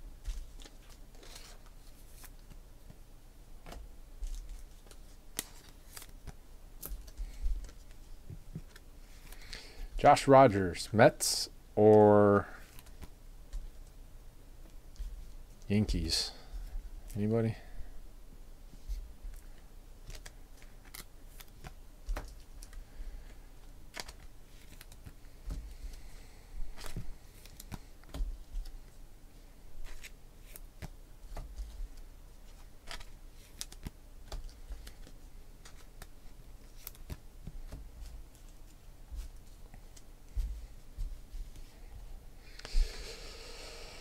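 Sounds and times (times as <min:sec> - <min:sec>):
cards clicking and tapping: 0:03.6 - 0:09.5, 0:20.0 - 0:25.8, 0:26.8 - 0:28.8, 0:29.8 - 0:38.5.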